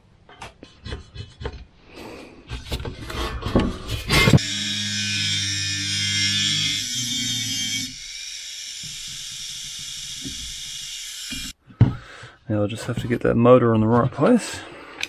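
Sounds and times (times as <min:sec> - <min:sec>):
angle grinder cutting steel: 0:04.0 - 0:11.6.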